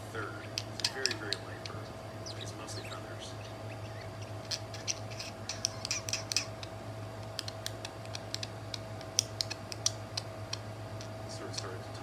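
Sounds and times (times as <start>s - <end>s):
faint bird chirps: 0.4s - 6.7s
budgerigar beak clicks: 0.4s - 11.8s.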